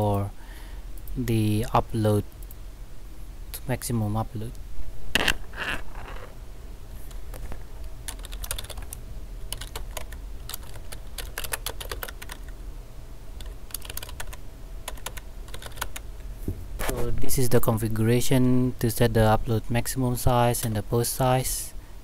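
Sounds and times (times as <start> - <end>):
keyboard typing clicks: 8.1 - 12.5, 13.4 - 16.0.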